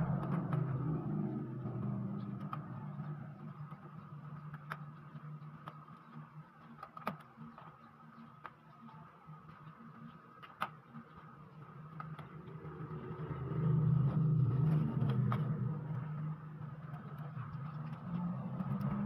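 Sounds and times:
passing vehicle engine drone: 0.0s - 4.4s, 12.4s - 19.0s.

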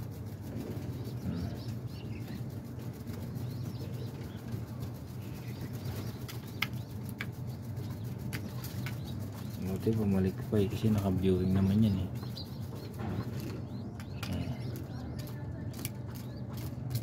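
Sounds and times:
steady low hum: 0.0s - 17.0s
pigeon pecking clicks: 5.4s - 10.5s, 12.2s - 17.0s.

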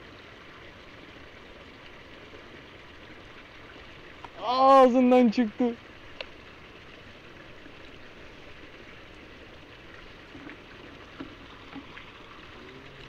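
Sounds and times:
water splashing into pond: 5.8s - 13.0s
faint ticks: 6.1s - 6.4s.

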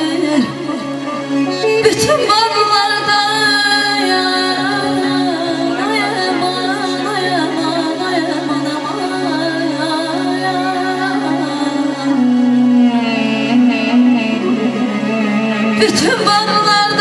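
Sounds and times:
woman singing ornamented melody: 0.0s - 14.5s, 15.8s - 17.0s.

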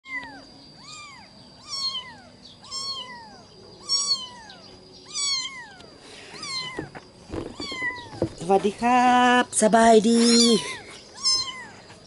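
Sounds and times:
kitten meowing: 0.1s - 6.9s, 7.5s - 8.3s, 10.2s - 11.8s.

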